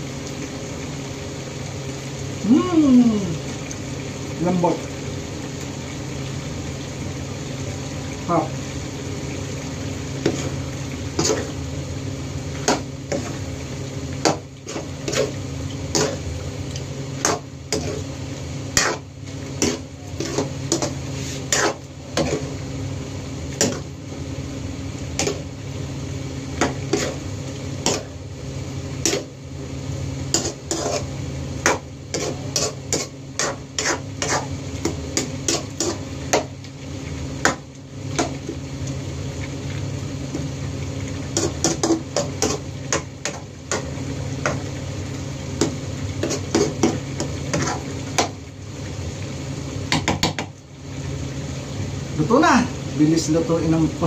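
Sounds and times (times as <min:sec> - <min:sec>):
metal ladle scraping frying pan: 0:30.3 - 0:31.1.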